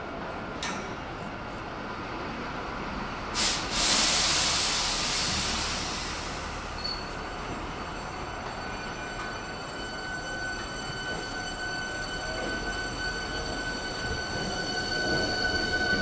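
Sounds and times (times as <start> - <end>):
air brakes hissing: 3.3 - 7.3
short burst of air: 3.4 - 6.6.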